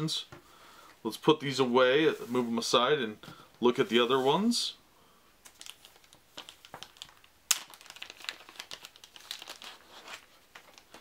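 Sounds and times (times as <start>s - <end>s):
plastic wrapping crinkling: 5.4s - 11.0s.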